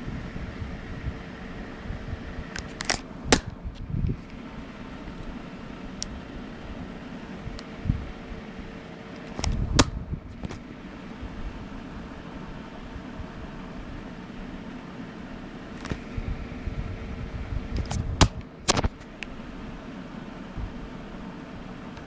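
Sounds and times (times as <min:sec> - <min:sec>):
steady low hum: 0:00.0 - 0:22.0
dull handling thuds: 0:09.2 - 0:10.7, 0:17.8 - 0:19.1.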